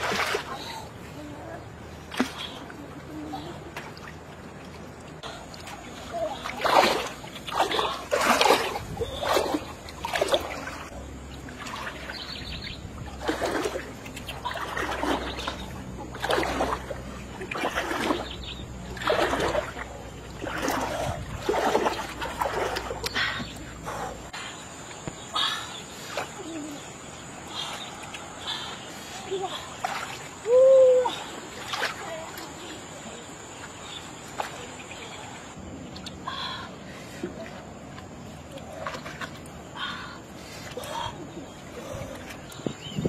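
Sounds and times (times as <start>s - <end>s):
pole splashing in water: 6.4s - 12.4s, 13.1s - 23.2s.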